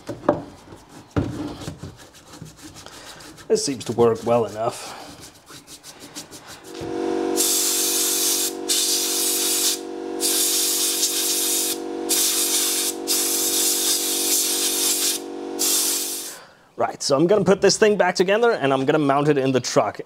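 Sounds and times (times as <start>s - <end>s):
compressed air hissing: 6.0s - 16.5s
steady hum: 6.6s - 16.4s.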